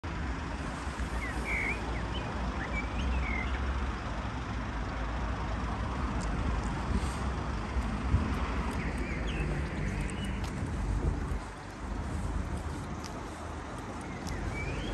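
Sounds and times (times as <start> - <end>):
distant road traffic rumble: 0.0 - 14.9
bird chirps: 1.1 - 3.7, 8.7 - 10.4, 14.0 - 14.9.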